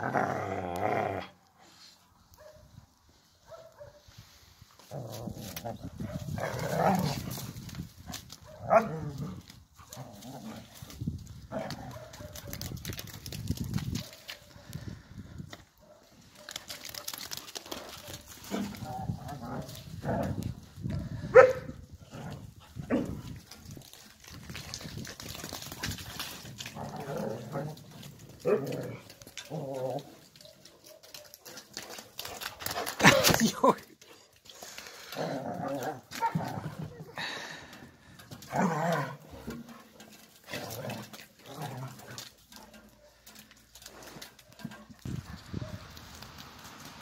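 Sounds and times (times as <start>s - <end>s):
dogs growling while playing: 0.0s - 1.4s, 4.8s - 7.6s, 8.6s - 12.2s, 17.6s - 21.3s, 22.0s - 24.3s, 25.2s - 30.4s, 34.8s - 45.0s
dog barking: 2.4s - 2.7s, 3.4s - 4.0s, 8.4s - 8.9s, 11.9s - 12.6s, 15.8s - 16.5s, 21.3s - 21.8s, 45.6s - 45.8s.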